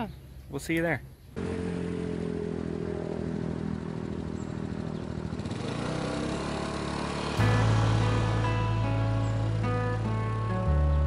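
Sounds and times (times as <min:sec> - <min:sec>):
scooter engine running: 0:01.4 - 0:11.0.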